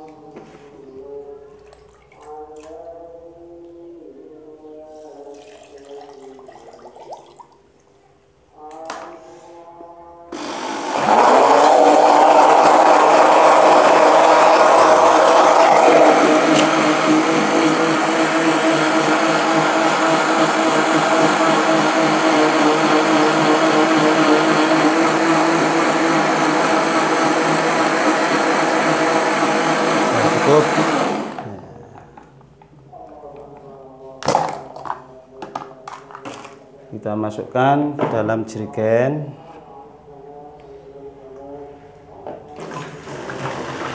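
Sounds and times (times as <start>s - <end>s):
blender running: 10.4s - 32.0s, 42.6s - 43.9s.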